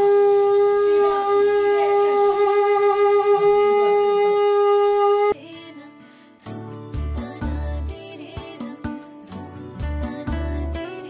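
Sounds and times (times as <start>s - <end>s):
conch shell blown: 0.0s - 5.4s.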